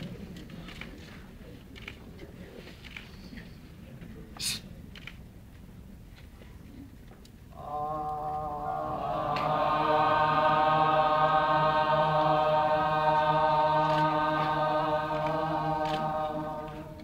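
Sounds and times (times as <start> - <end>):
group of voices chanting: 7.6 - 17.0.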